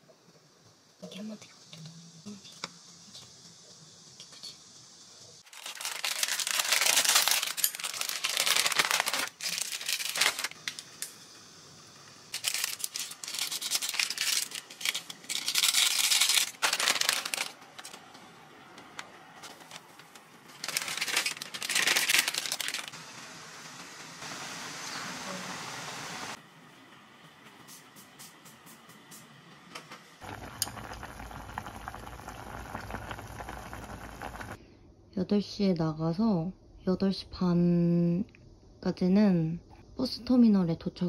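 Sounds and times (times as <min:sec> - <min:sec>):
plastic packet crinkling: 0:05.4 - 0:10.9, 0:12.3 - 0:18.1, 0:19.4 - 0:23.0
plastic packet tearing open: 0:05.5 - 0:10.8, 0:12.3 - 0:18.0, 0:20.5 - 0:23.0.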